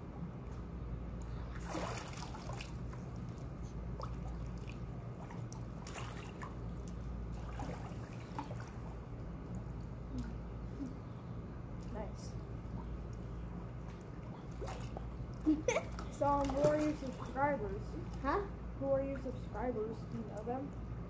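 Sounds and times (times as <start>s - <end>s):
steady low rumble: 0.0s - 21.0s
pool water sloshing: 1.1s - 10.9s, 11.7s - 20.9s
water splash: 1.5s - 3.3s, 4.0s - 6.6s, 7.4s - 8.8s.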